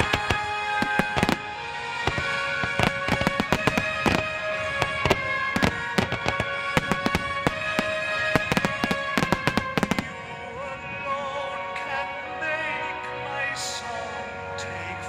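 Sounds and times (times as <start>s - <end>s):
firework shells bursting: 0.0s - 10.2s
music with long held notes: 0.0s - 15.0s.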